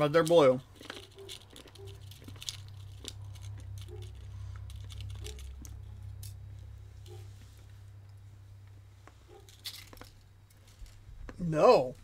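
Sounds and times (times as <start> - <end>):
mints and plastic packaging rattling: 0.0 - 7.2, 9.3 - 11.2
steady low hum: 0.0 - 12.0.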